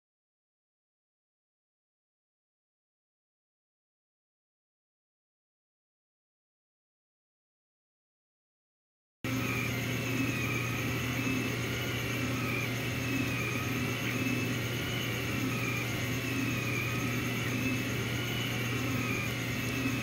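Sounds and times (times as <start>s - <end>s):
steady low hum: 9.3s - 20.0s
stepper motors whining: 9.3s - 20.0s.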